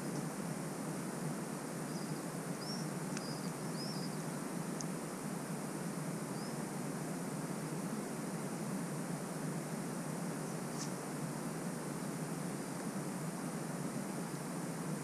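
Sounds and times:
outdoor background noise: 0.0s - 15.0s
small bird chirping: 1.8s - 4.4s, 6.3s - 6.6s.

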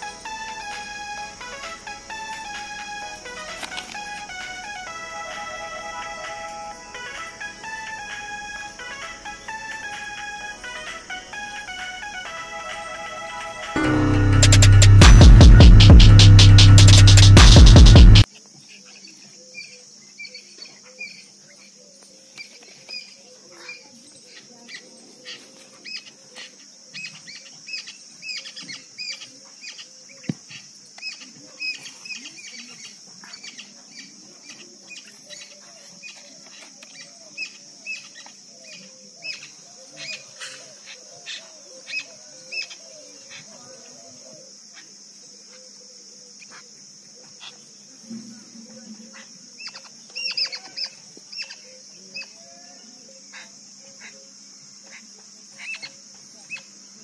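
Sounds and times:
insect drone: 0.0s - 57.0s
bird chirps: 49.6s - 52.4s.

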